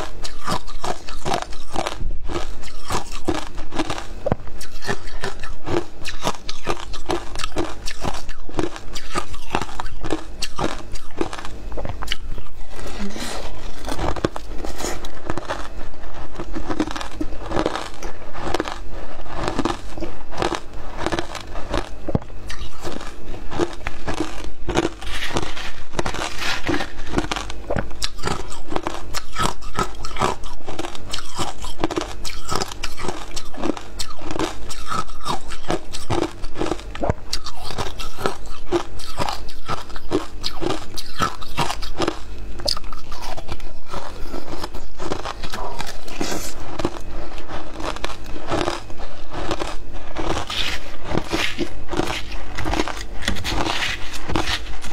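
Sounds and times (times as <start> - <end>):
ice crunching between teeth: 0.0 - 54.9.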